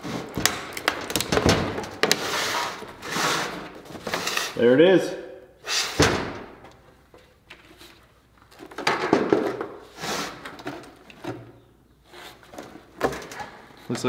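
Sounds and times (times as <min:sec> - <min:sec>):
plastic case rustling and knocking: 0:08.4 - 0:09.8.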